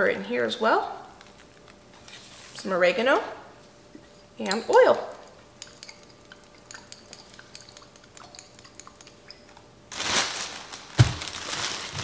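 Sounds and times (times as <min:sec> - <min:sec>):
plastic bag crinkling: 0:09.9 - 0:12.0.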